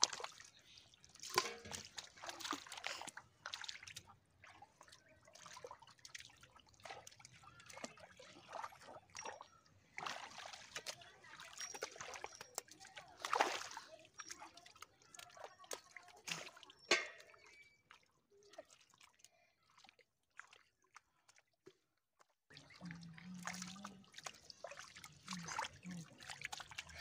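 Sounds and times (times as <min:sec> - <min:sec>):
hands squelching in wet mud: 0:00.0 - 0:16.9, 0:18.6 - 0:27.0
water splats: 0:01.1 - 0:04.1, 0:22.5 - 0:27.0.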